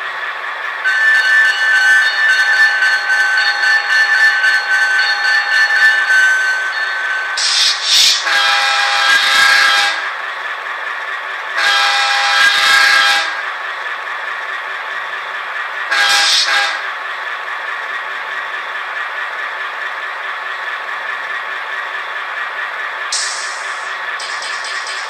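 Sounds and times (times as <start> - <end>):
model locomotive horn blasts: 0.8 - 5.0, 8.2 - 10.1, 11.6 - 13.4, 15.9 - 16.8
diesel engine sound: 7.4 - 25.0.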